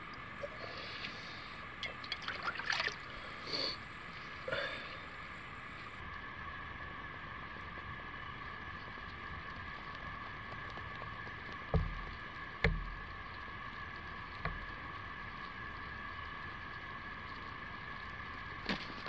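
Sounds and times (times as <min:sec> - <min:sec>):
high drone of insects: 0:00.0 - 0:19.0
dull knocks: 0:11.7 - 0:13.2, 0:14.4 - 0:14.8.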